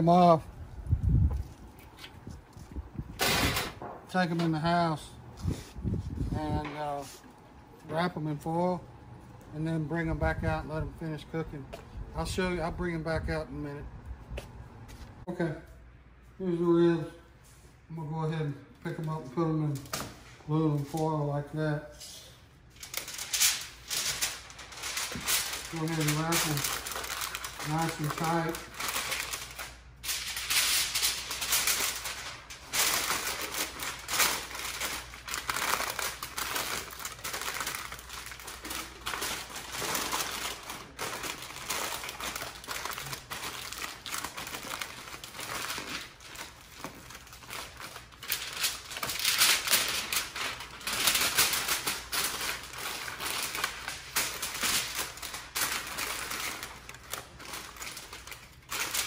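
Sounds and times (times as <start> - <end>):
aluminium foil crinkling: 22.7 - 59.0.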